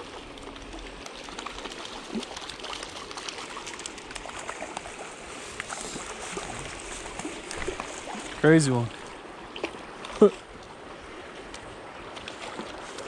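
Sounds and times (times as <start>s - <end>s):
river water rushing: 0.0s - 13.0s.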